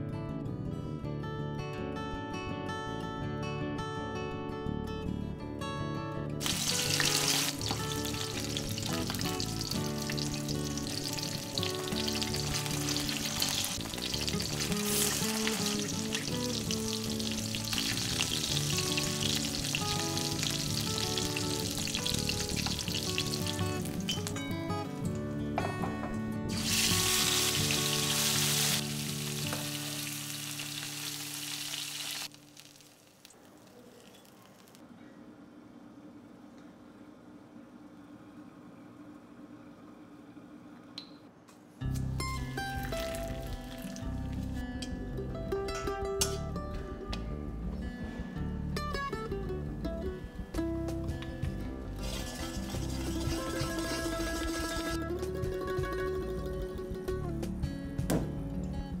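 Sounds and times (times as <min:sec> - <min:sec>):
soft background music: 0:00.0 - 0:32.7, 0:41.8 - 0:59.0
fish sizzling in hot oil: 0:06.4 - 0:24.3, 0:26.5 - 0:34.8.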